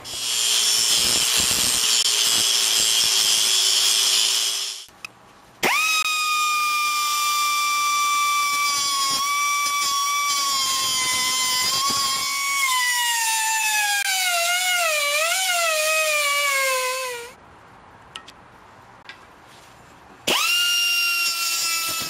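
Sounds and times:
angle grinder cutting steel: 0.0s - 4.9s, 5.6s - 17.3s.

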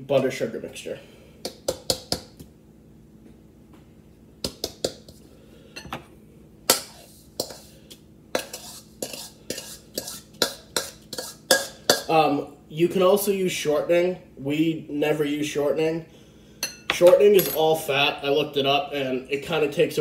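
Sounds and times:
utensil clinking against bowl: 8.4s - 12.1s.

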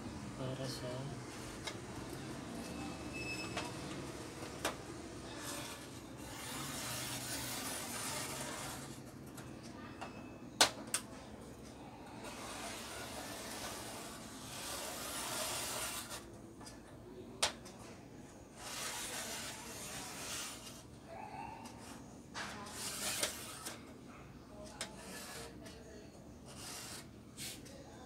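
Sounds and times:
marker scratching on metal: 5.4s - 9.1s, 12.2s - 16.3s, 18.6s - 20.9s, 22.6s - 23.8s, 24.7s - 25.8s, 26.4s - 27.6s.

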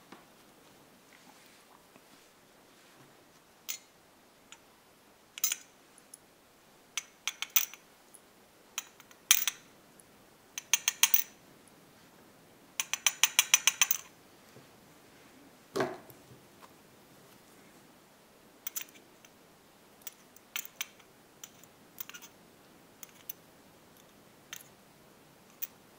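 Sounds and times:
small metal clicks of lock pins: 12.8s - 14.1s, 18.7s - 19.4s, 20.0s - 22.3s, 23.0s - 23.4s.

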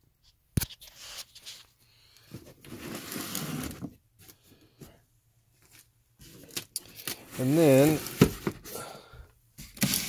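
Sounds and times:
toy packaging rustling and scraping: 0.6s - 4.5s, 5.5s - 8.8s, 9.6s - 10.0s.

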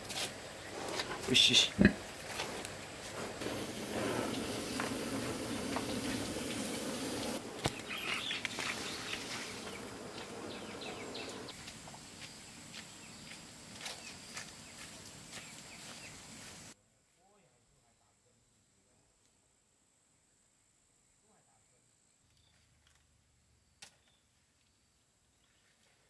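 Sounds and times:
insects buzzing: 0.4s - 16.8s.

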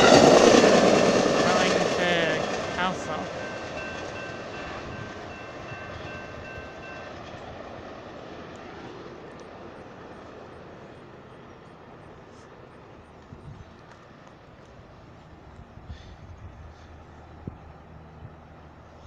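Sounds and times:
train rumbling on rails: 0.0s - 19.0s
high ringing tone: 2.8s - 7.3s.

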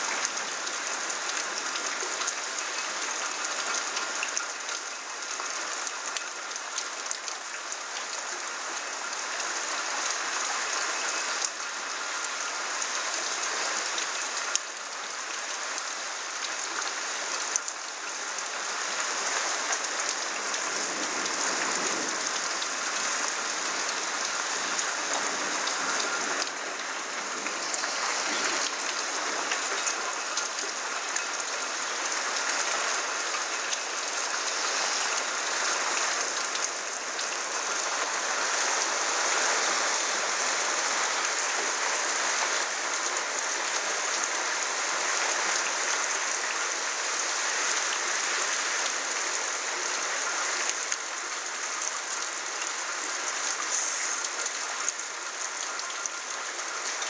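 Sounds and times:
raindrops ticking on hard surfaces: 0.0s - 57.0s
steady rain hiss: 0.0s - 57.0s.

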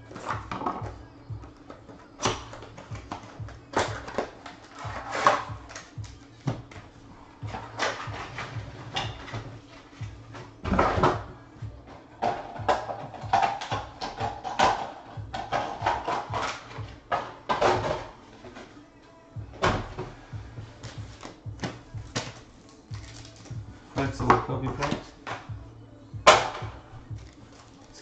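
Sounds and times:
background music: 0.0s - 28.0s
cardboard box and foil crinkling: 22.1s - 23.6s, 27.2s - 28.0s.

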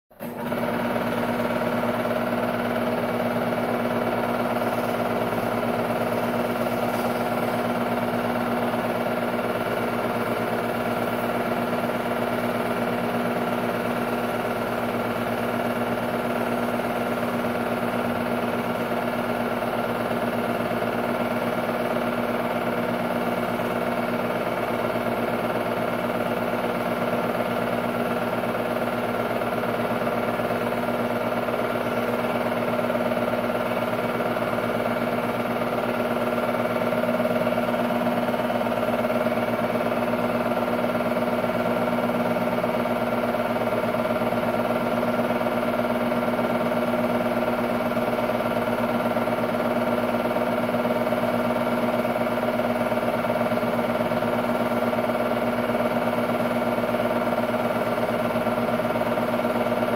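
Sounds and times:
projector motor hum: 0.2s - 59.9s.

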